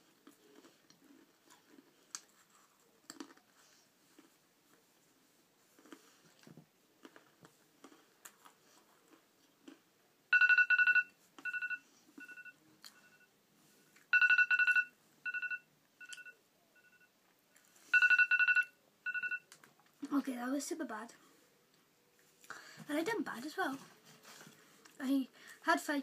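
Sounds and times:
phone timer alarm beeping: 0:10.3 - 0:13.3, 0:14.1 - 0:17.1, 0:17.9 - 0:19.5.

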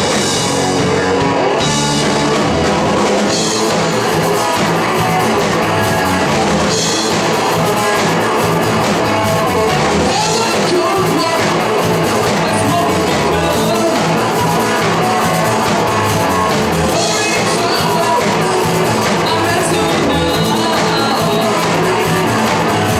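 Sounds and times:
bass guitar: 0:00.0 - 0:22.9
drum kit with cymbals: 0:00.0 - 0:22.9
electric guitar: 0:00.0 - 0:22.9
person singing: 0:09.2 - 0:22.9.

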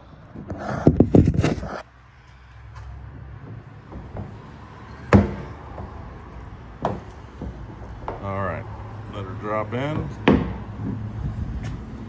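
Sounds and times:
sharp knocks: 0:03.4 - 0:06.2, 0:06.8 - 0:08.3, 0:09.9 - 0:11.1.

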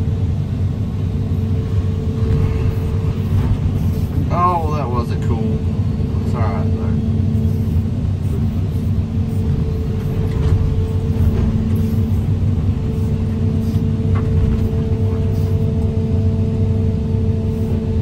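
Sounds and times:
excavator diesel engine running: 0:00.0 - 0:18.0.

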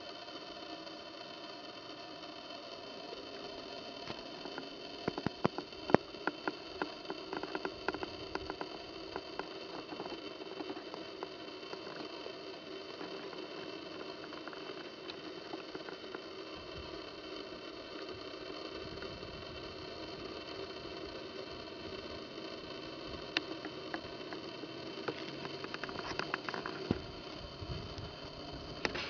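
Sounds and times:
steady hum and hiss: 0:00.0 - 0:29.0
sharp irregular clicks and taps: 0:03.4 - 0:17.3, 0:20.0 - 0:29.0.

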